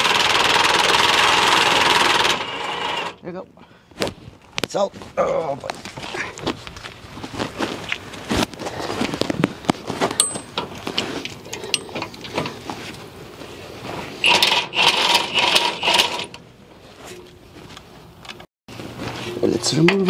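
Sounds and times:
metal tools scraping and clinking: 10.1 - 12.7.

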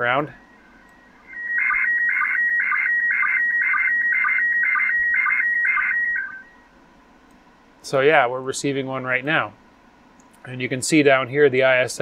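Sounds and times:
warbling high radio tone: 0.0 - 6.6.

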